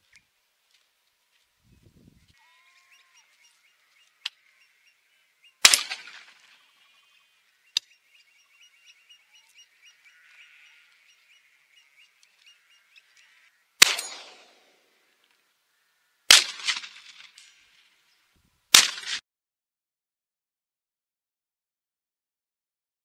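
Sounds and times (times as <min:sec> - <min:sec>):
birds chirping faintly: 0:01.4 - 0:16.3
shotgun firing: 0:05.6 - 0:06.6, 0:13.8 - 0:14.8, 0:16.3 - 0:17.4, 0:18.7 - 0:19.2.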